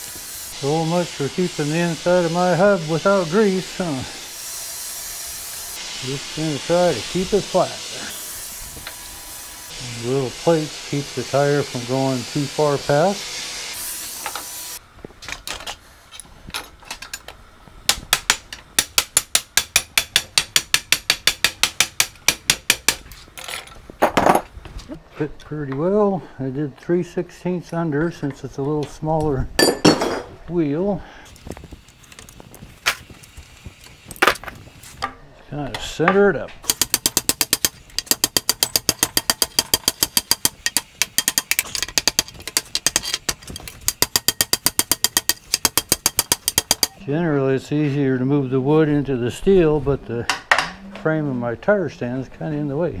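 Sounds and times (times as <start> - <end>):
hammer tapping metal: 17.9 - 23.0, 36.1 - 47.0.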